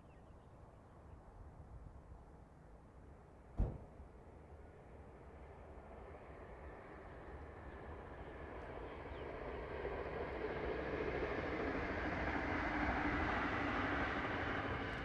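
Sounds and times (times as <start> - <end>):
distant steam locomotive working: 4.4 - 15.0.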